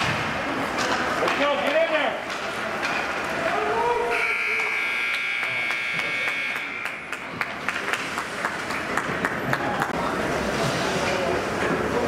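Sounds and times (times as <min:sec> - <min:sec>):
scoreboard buzzer: 0:04.1 - 0:07.1.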